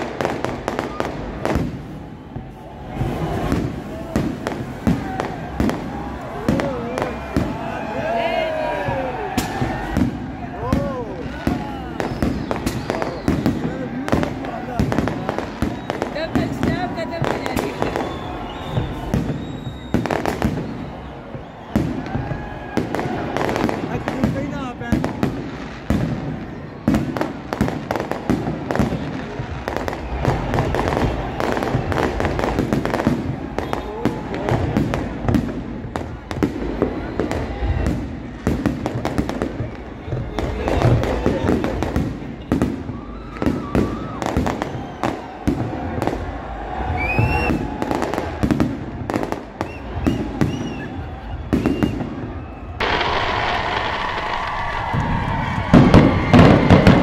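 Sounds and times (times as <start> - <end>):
crowd noise: 0.0 - 57.0
fireworks crackling: 0.0 - 57.0
firework shells bursting: 52.7 - 57.0.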